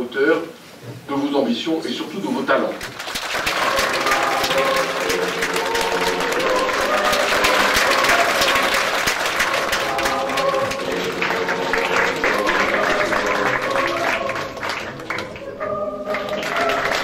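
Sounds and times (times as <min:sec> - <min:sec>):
audience applauding: 0:02.8 - 0:17.0
background music: 0:03.4 - 0:17.0.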